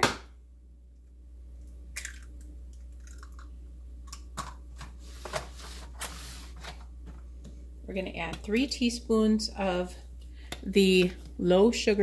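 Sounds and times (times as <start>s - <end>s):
eggshell clicks and crackles: 1.6s - 4.6s.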